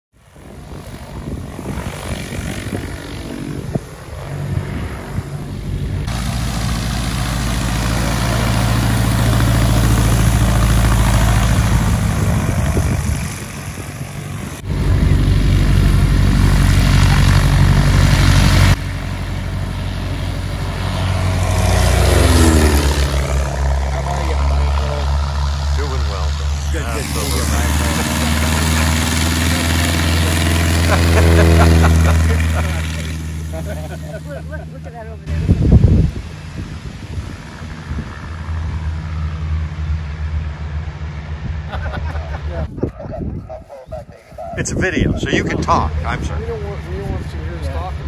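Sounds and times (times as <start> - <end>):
light aircraft engines droning: 0.2 - 48.0.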